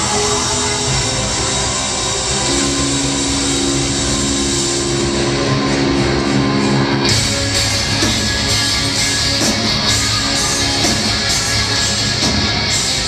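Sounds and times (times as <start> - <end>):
held ringing notes: 0.0 - 12.2
electric guitars: 0.0 - 13.0
live rock band playing: 0.0 - 13.0
drums with cymbals: 7.0 - 13.0.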